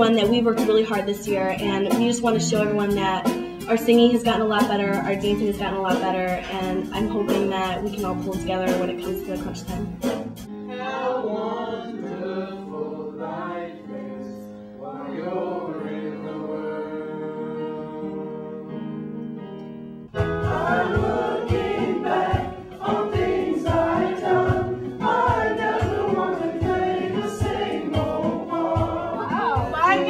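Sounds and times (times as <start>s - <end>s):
music with steady beat and singing: 0.0s - 11.2s, 20.1s - 30.0s
choir singing held chords: 10.5s - 19.0s, 20.2s - 30.0s.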